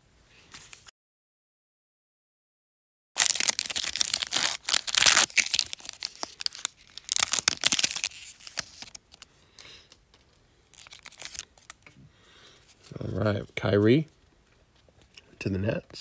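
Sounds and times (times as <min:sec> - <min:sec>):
foil wrapper tearing and crinkling: 0:03.2 - 0:09.3, 0:10.7 - 0:11.8.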